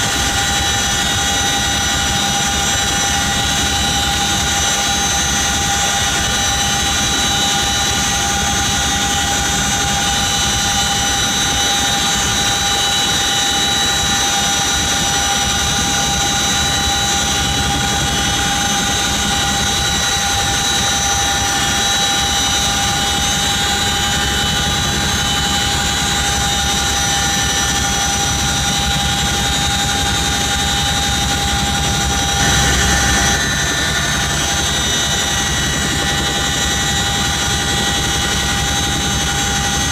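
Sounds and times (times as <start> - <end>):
helicopter engines whining: 0.0 - 39.9
low rumble of rotor and wind: 0.0 - 39.9.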